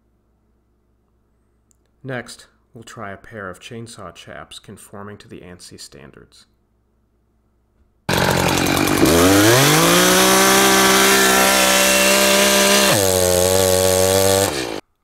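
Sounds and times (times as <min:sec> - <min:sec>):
chainsaw revving: 0:08.1 - 0:14.8.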